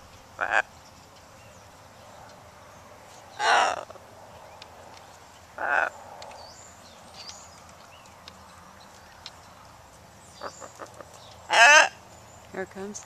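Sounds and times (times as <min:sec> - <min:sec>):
small birds chirping: 0:00.0 - 0:13.0
macaw squawk: 0:00.4 - 0:00.7, 0:03.4 - 0:03.9, 0:05.6 - 0:06.0, 0:10.4 - 0:12.0.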